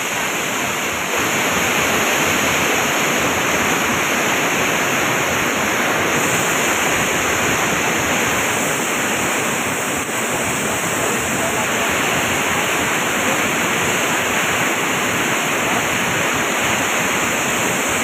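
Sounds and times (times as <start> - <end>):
turbulent water rushing: 0.0 - 18.0.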